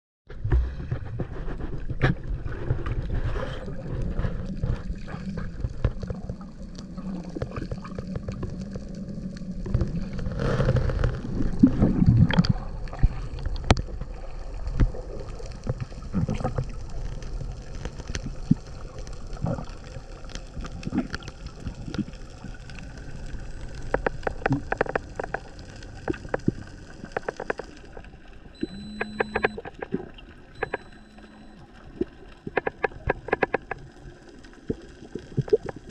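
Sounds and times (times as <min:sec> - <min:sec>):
underwater bubbles and churning: 0:00.3 - 0:35.9
deep water murmur: 0:00.4 - 0:35.9
sharp underwater clicks: 0:19.4 - 0:35.9
short high beeps: 0:28.6 - 0:29.8, 0:30.6 - 0:31.7.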